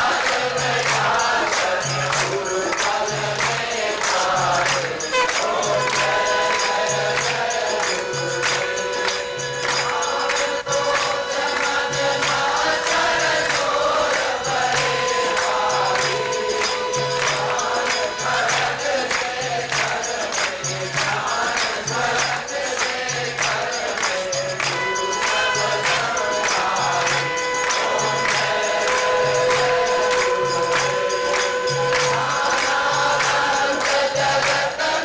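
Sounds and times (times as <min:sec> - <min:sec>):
group singing a hymn: 0:00.0 - 0:35.0
jingling hand percussion: 0:00.0 - 0:35.0
long held note: 0:24.7 - 0:32.9.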